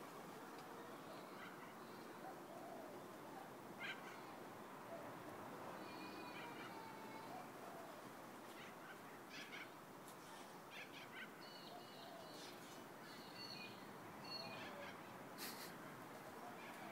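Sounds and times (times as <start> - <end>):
background hiss: 0.0 - 16.9
faint bird chirps: 10.3 - 15.6.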